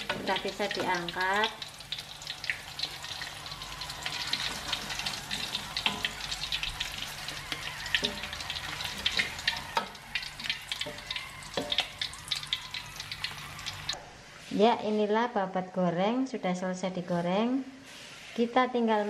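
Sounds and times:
oil sizzling in a wok: 0:00.0 - 0:14.0
metal spatula knocking: 0:04.3 - 0:12.1.

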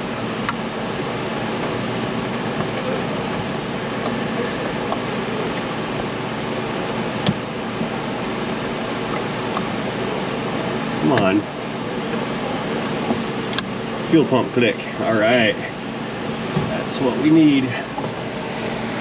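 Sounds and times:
fan whirring: 0:00.0 - 0:19.0
sharp click: 0:13.5 - 0:13.7.

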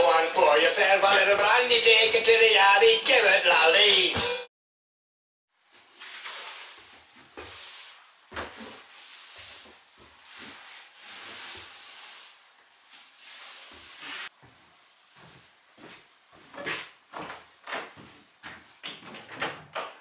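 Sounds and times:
broom sweeping wooden floor: 0:05.6 - 0:17.0.

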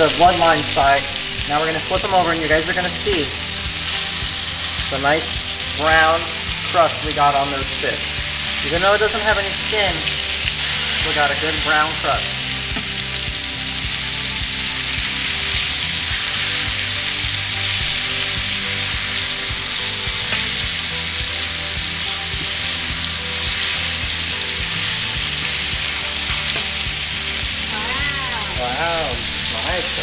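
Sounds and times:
fish sizzling in hot oil: 0:00.0 - 0:30.0.

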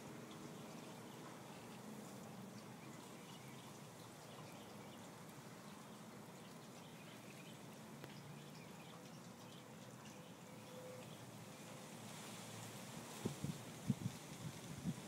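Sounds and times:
faint background hiss: 0:00.0 - 0:15.0
tiny ticks: 0:08.0 - 0:10.2.

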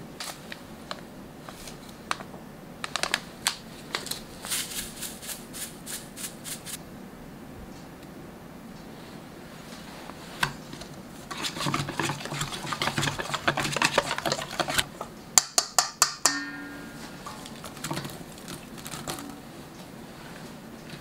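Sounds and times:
spoon stirring in metal bowl: 0:10.4 - 0:19.5
metal taps on bowl: 0:15.4 - 0:17.1
bowl ringing: 0:16.2 - 0:17.5.

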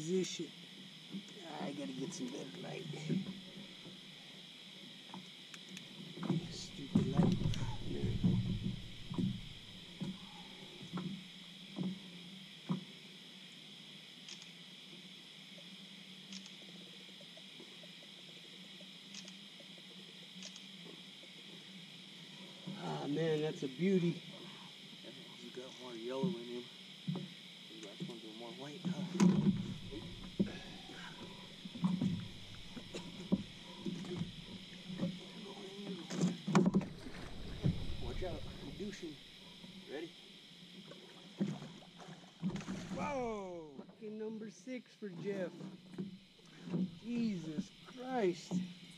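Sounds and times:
faint hum: 0:00.0 - 0:48.9
soft knocks in a boat: 0:06.1 - 0:11.2, 0:11.8 - 0:13.0, 0:27.0 - 0:27.4, 0:28.9 - 0:35.3, 0:36.0 - 0:38.9, 0:41.4 - 0:43.0.

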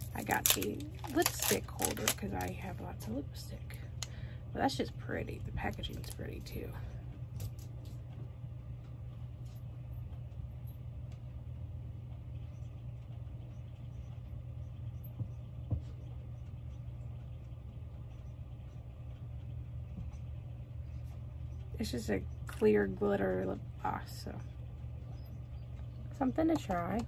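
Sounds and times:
machine humming: 0:00.0 - 0:27.0
faint clicks and taps: 0:12.1 - 0:22.7, 0:24.4 - 0:27.0.

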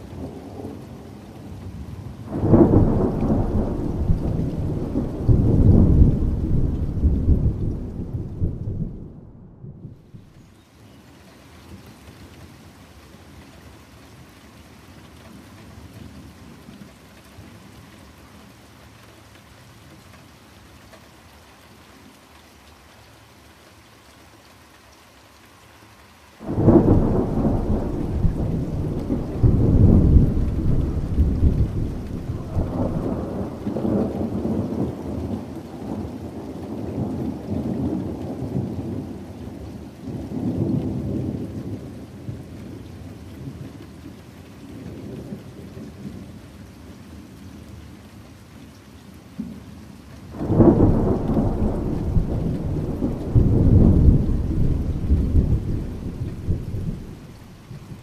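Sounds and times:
steady rain: 0:00.0 - 0:58.0
thunderclap and rumble: 0:02.3 - 0:10.0, 0:26.4 - 0:39.1, 0:50.4 - 0:58.0.

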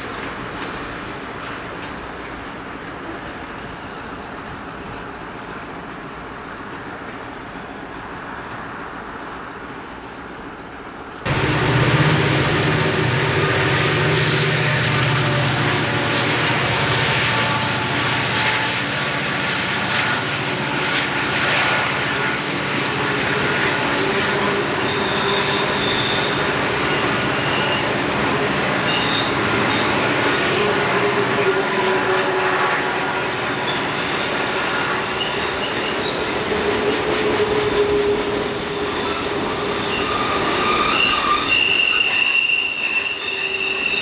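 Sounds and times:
train wheels rumbling on rail: 0:00.0 - 0:44.0
wheel squeals: 0:24.8 - 0:27.9, 0:28.8 - 0:30.0, 0:33.1 - 0:44.0.

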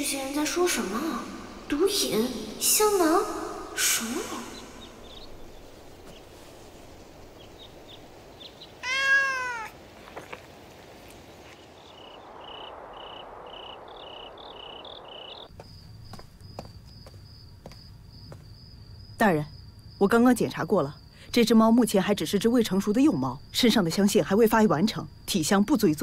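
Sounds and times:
cat meowing: 0:08.8 - 0:09.8.

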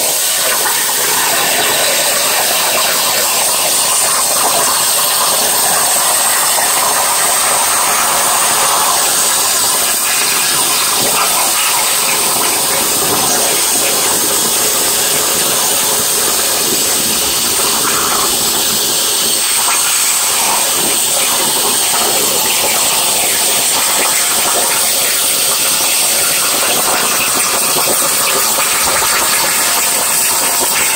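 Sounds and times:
plasma torch cutting hiss: 0:00.0 - 0:30.9.

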